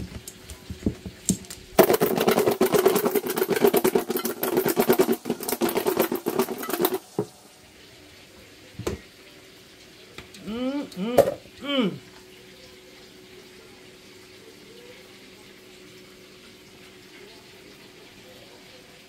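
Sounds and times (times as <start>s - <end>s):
rapid rattle of shaken bowl: 1.8s - 7.2s
bowl knocking down on surface: 11.2s - 11.4s.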